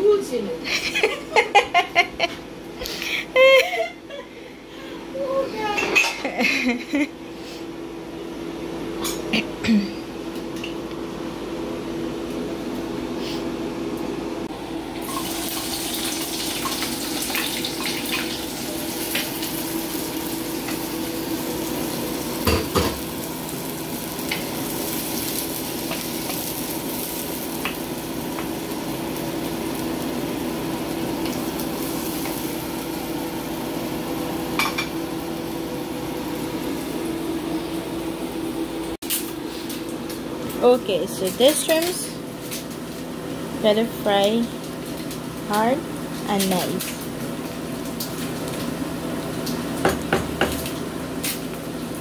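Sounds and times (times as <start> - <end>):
shrimp sizzling in a pan: 15.0 - 37.3
knock on pan: 22.4 - 23.0, 49.8 - 50.6.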